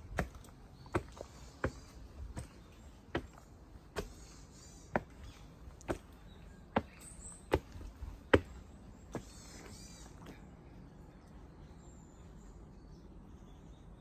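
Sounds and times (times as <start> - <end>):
footsteps on stone steps: 0.0 - 10.4.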